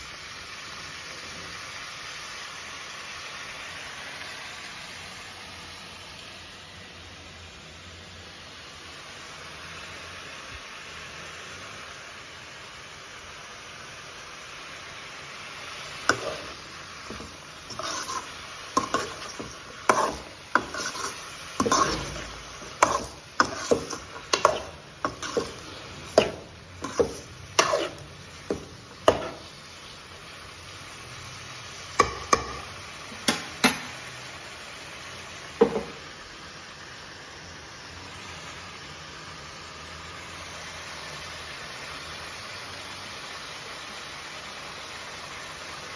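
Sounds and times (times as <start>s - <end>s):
steady hiss: 0.0s - 45.9s
metal spoon scraping a pan: 16.0s - 29.6s, 32.0s - 34.0s.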